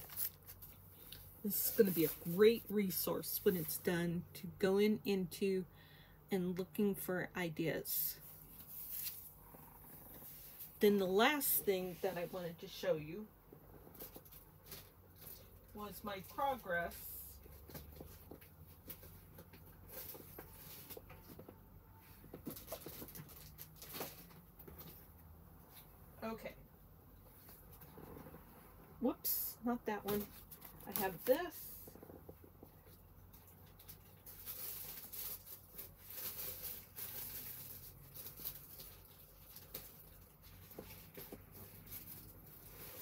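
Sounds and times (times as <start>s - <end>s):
objects rustling and scraping: 8.1s - 10.8s, 13.5s - 15.7s, 17.3s - 26.1s, 30.0s - 43.0s.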